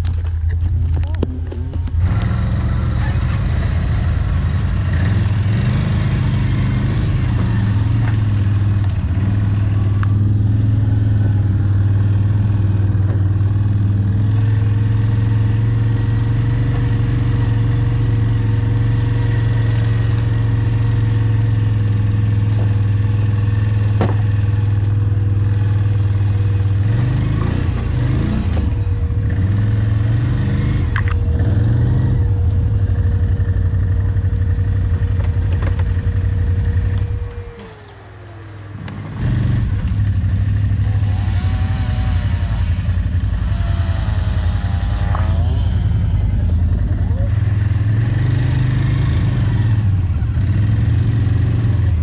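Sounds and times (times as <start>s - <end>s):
quad engine running: 0.0s - 52.0s.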